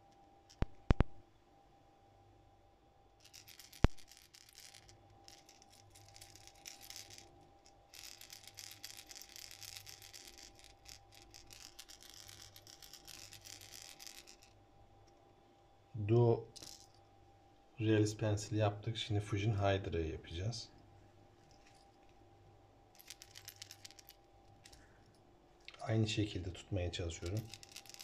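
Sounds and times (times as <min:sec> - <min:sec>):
balls rattling inside fishing lure: 0:00.4 - 0:01.1, 0:03.2 - 0:15.2, 0:16.5 - 0:17.0, 0:21.4 - 0:22.2, 0:22.9 - 0:25.2, 0:27.0 - 0:28.0.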